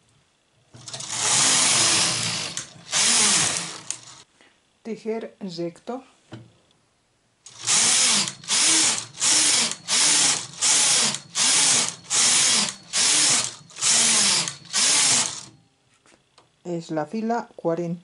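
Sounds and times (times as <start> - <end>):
knitting machine carriage rasping: 0.8 - 4.2.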